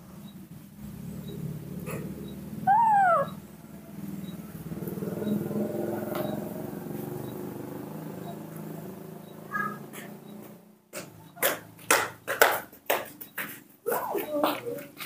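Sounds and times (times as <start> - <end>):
baby monkey soft vocal sounds: 1.9 - 3.4, 13.9 - 15.0
baby monkey high call: 2.6 - 3.5.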